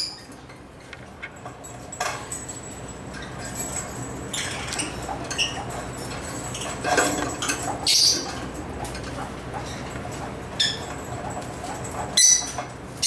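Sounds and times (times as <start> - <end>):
birds chirping: 3.1 - 12.7.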